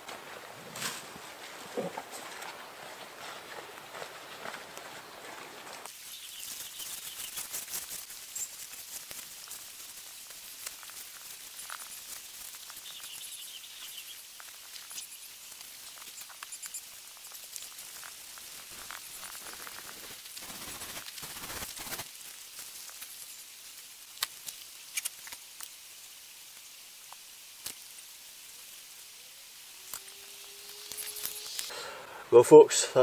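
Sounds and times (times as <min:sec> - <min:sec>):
camping gear rustling: 0:00.0 - 0:23.3
small birds chirping: 0:01.8 - 0:08.7, 0:11.6 - 0:19.8.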